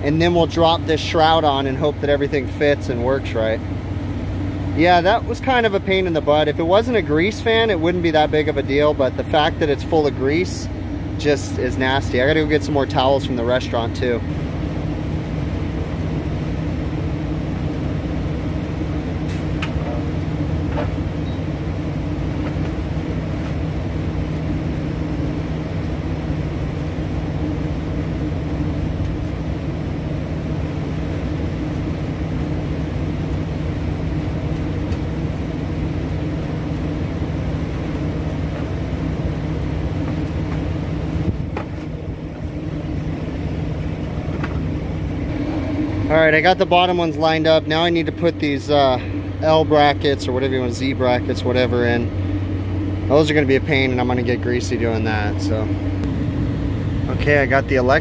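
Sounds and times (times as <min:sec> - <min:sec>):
exhaust fans droning: 0:00.0 - 0:58.0.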